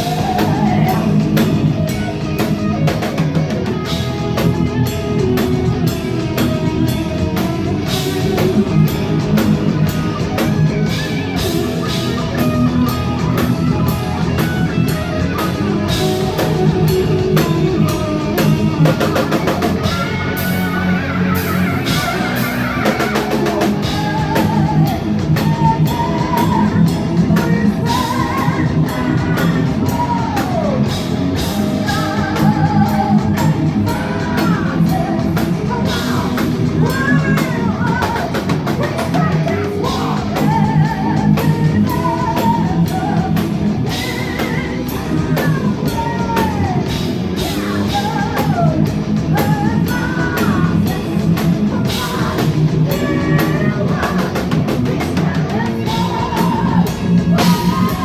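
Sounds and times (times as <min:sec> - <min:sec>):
heavy metal band playing live: 0:00.0 - 0:58.0.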